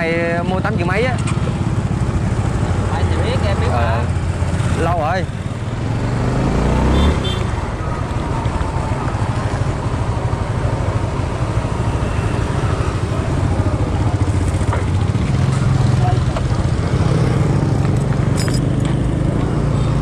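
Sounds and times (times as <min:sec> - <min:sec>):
road and wind noise: 0:00.0 - 0:20.0
scooter engine running: 0:06.7 - 0:20.0.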